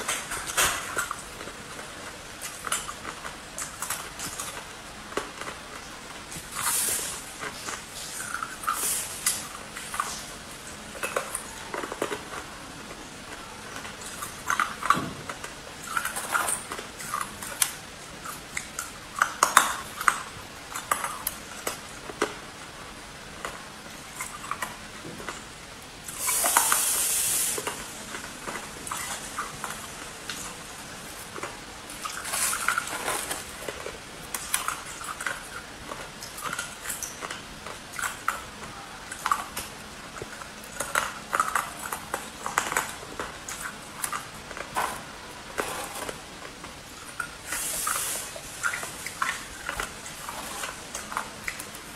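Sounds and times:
ice crunching between teeth: 26.0s - 51.9s.

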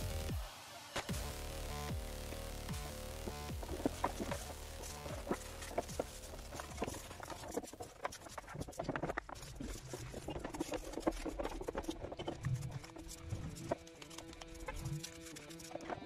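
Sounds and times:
brush scrubbing plastic: 3.5s - 16.0s.

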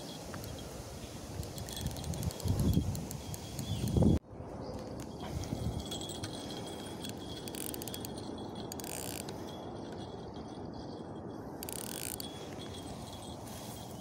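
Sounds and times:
fishing reel gears ticking: 1.4s - 4.1s, 5.8s - 10.6s, 11.2s - 13.2s.

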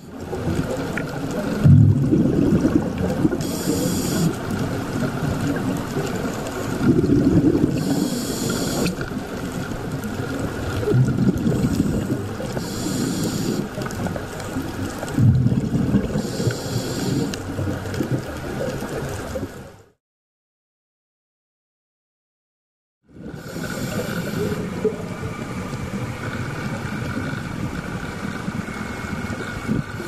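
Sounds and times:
bubbling exhalation: 1.4s - 4.4s, 5.5s - 9.0s, 10.8s - 13.8s, 15.0s - 18.2s
diver breathing through regulator: 3.4s - 4.4s, 7.6s - 9.0s, 11.5s - 13.8s, 16.1s - 17.5s, 23.2s - 24.9s.

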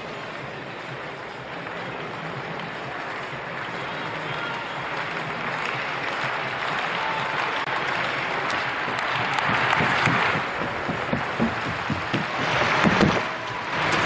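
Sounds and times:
crowd applauding: 0.0s - 14.0s
low thumps: 8.9s - 14.0s.

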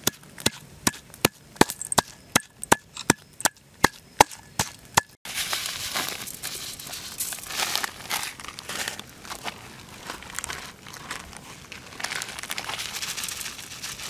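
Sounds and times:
granules sprinkled rustling hiss: 5.3s - 14.0s.

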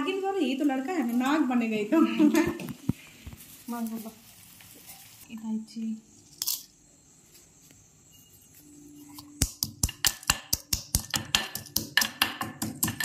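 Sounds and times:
metal pestle striking mortar: 9.2s - 13.0s.

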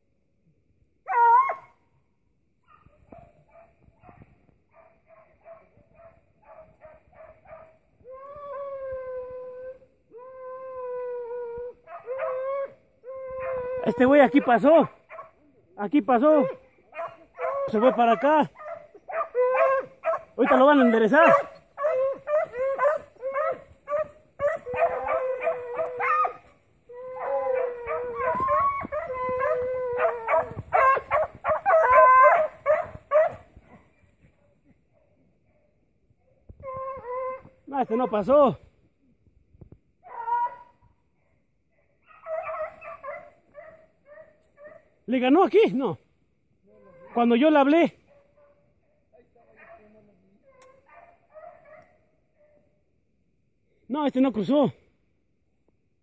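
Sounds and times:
hound yelping: 1.0s - 1.8s, 2.7s - 15.4s, 16.1s - 33.8s, 36.5s - 38.2s, 40.0s - 40.8s, 42.0s - 44.9s, 46.8s - 48.6s, 49.6s - 52.6s
hound howling: 1.1s - 1.7s, 7.5s - 14.9s, 16.2s - 33.4s, 36.5s - 37.6s, 40.0s - 40.8s.

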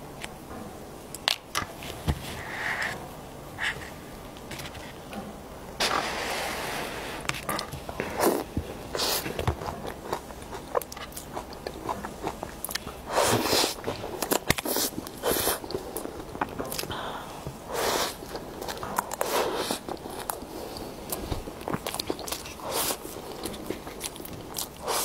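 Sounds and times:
wet chewing: 7.5s - 16.9s, 17.7s - 25.0s.

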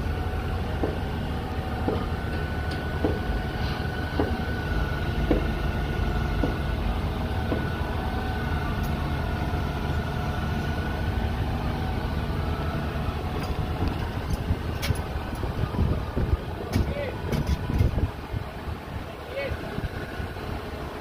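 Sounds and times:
crane engine rumble with whine: 0.0s - 21.0s.

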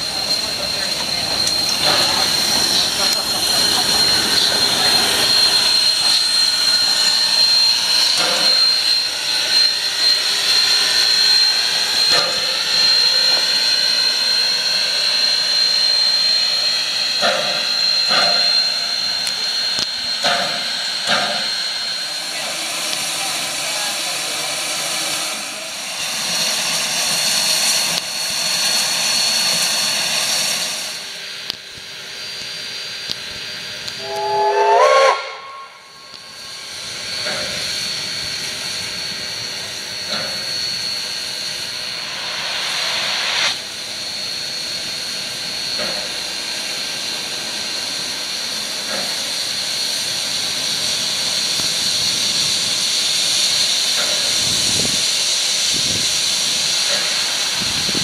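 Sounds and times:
steam locomotive hissing: 0.0s - 58.0s
chime whistle: 34.0s - 36.2s.

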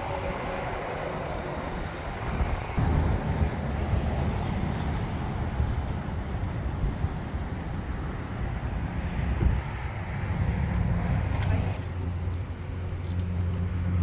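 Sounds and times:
road traffic noise: 0.0s - 14.0s.

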